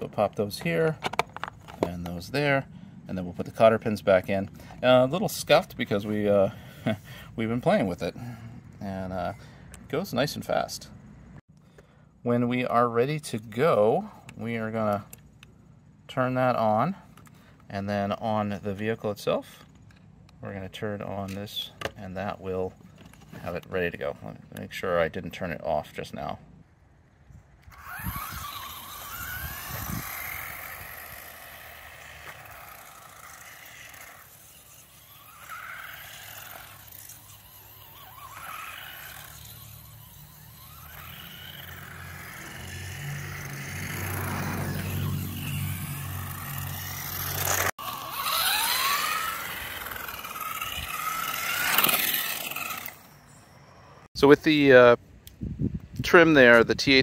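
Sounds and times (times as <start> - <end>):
tyres scraping on asphalt: 0.0 - 10.9, 27.8 - 54.1
electric motor whining: 27.6 - 54.1.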